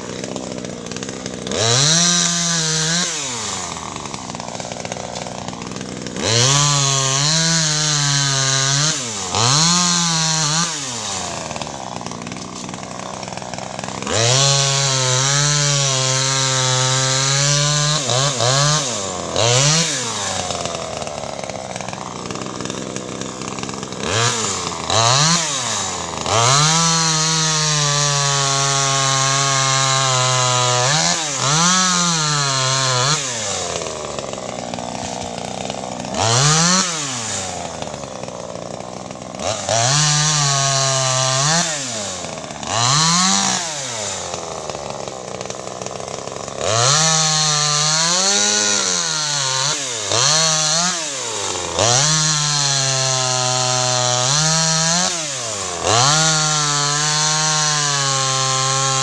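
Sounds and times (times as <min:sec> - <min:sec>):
chainsaw revving and cutting wood: 0:00.0 - 0:59.0.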